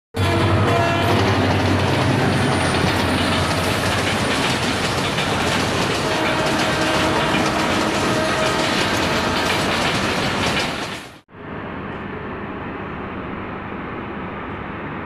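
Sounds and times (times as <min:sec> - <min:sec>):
locomotive engine hum: 0:00.2 - 0:15.0
train wheels clattering: 0:00.5 - 0:11.2.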